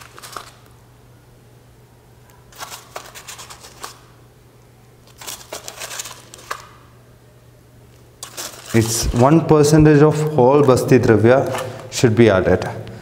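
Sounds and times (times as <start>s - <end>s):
rock salt crackling: 8.2s - 9.4s.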